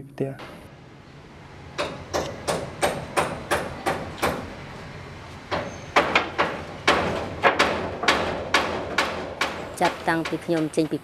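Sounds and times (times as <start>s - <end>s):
hammer strikes on roof tiles: 1.8s - 4.5s, 5.5s - 11.0s.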